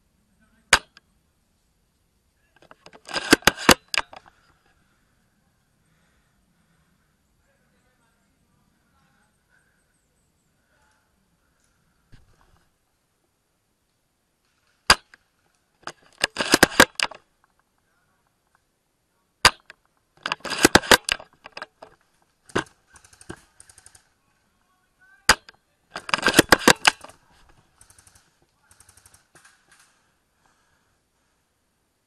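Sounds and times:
rifle bolt clicking: 0:02.6 - 0:04.3, 0:15.8 - 0:17.2, 0:19.5 - 0:23.3, 0:25.3 - 0:27.2.

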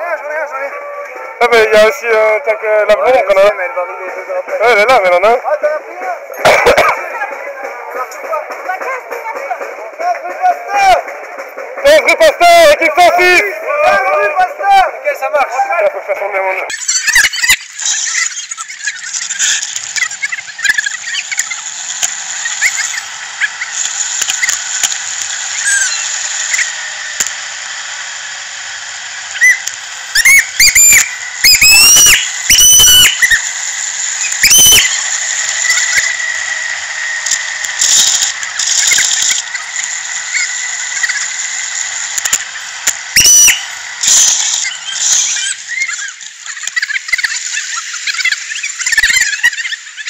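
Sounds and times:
air and road noise hiss: 0:00.0 - 0:50.0
high-pitched squeals: 0:16.7 - 0:50.0.

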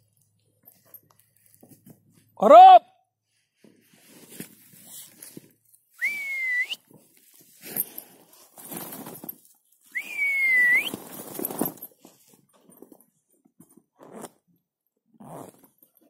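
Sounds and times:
rustling and shuffling: 0:00.0 - 0:02.4, 0:03.2 - 0:13.9
long whistled notes: 0:06.0 - 0:06.8, 0:10.0 - 0:11.0.

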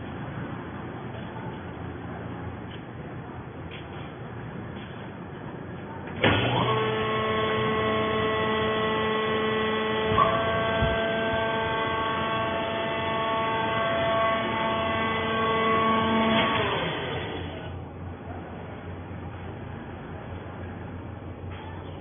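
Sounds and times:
hydraulic power pack whining: 0:06.2 - 0:17.8.

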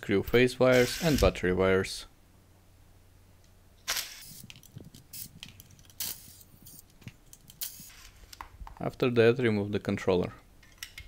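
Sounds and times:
impact screwdriver bursts: 0:03.9 - 0:04.5.

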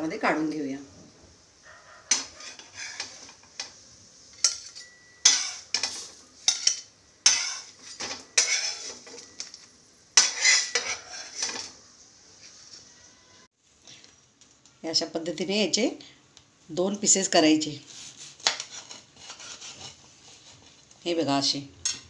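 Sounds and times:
metal spatula scraping iron griddle: 0:02.0 - 0:09.6, 0:10.2 - 0:11.8, 0:18.0 - 0:20.6.

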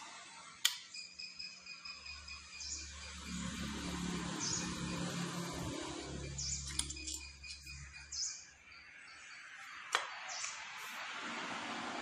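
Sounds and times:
engine parts clicking and clinking: 0:04.2 - 0:08.3.

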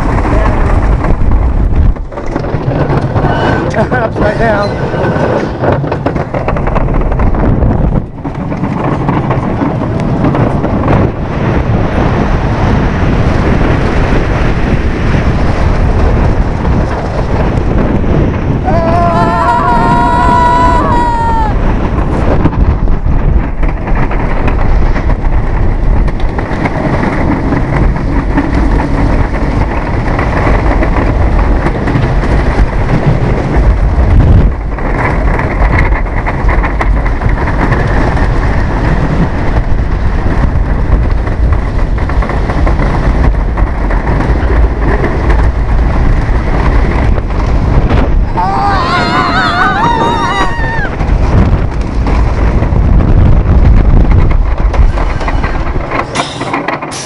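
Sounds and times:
roller coaster rumble and rattle: 0:00.0 - 0:57.0
wind rushing over microphone: 0:00.0 - 0:57.0.

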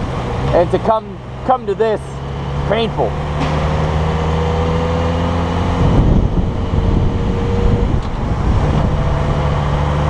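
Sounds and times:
motorcycle engine cruising: 0:00.0 - 0:10.0
wind buffeting microphone: 0:03.4 - 0:10.0.

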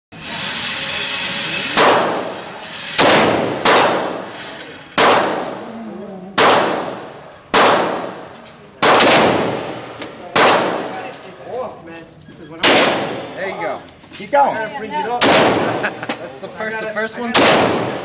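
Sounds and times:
pistol shots with ringing echo: 0:01.8 - 0:02.3, 0:03.0 - 0:04.2, 0:05.0 - 0:05.6, 0:06.4 - 0:11.0, 0:12.6 - 0:13.3, 0:15.2 - 0:15.8, 0:17.3 - 0:18.0.

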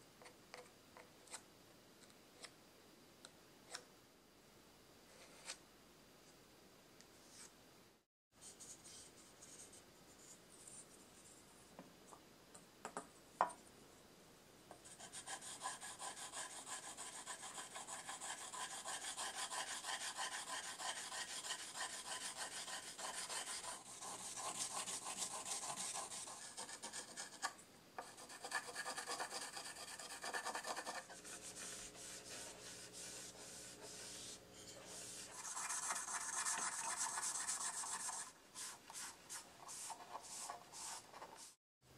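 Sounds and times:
charcoal scraping on wet lacquer: 0:28.3 - 0:41.6.

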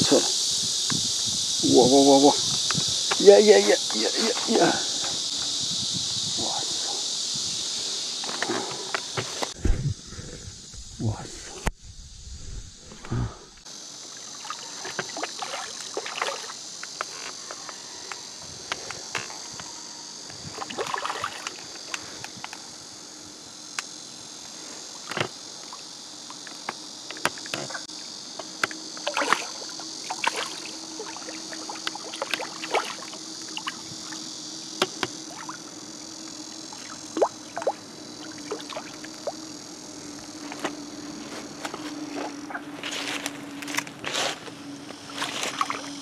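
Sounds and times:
insects droning: 0:00.0 - 0:46.0
fish splashing in water: 0:29.1 - 0:31.3, 0:31.9 - 0:33.8.

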